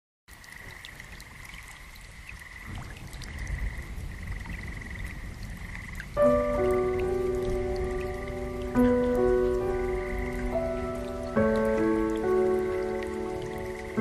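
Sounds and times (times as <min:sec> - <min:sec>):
water drips: 0:00.3 - 0:14.0
sustained music chords: 0:06.2 - 0:14.0.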